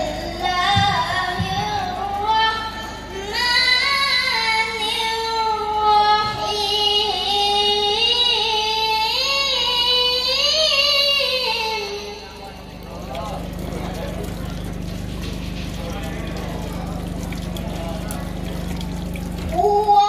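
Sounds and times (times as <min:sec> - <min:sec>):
boy chanting melodically: 0:00.0 - 0:12.6, 0:19.5 - 0:20.0.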